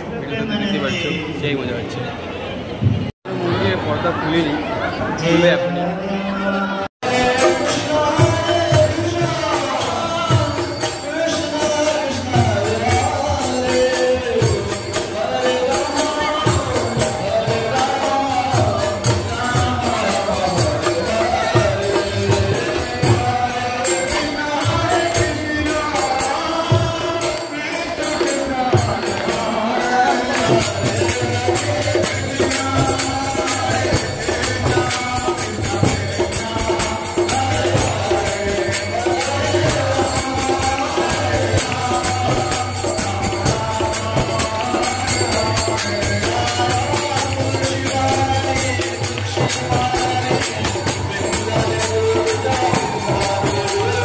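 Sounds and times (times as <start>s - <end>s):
hand cymbals: 7.0s - 54.0s
drum beat: 28.2s - 54.0s.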